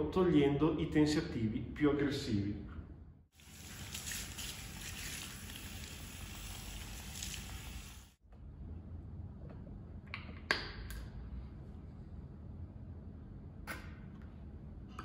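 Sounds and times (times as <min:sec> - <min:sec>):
shower spraying water on hair: 0:03.4 - 0:08.2.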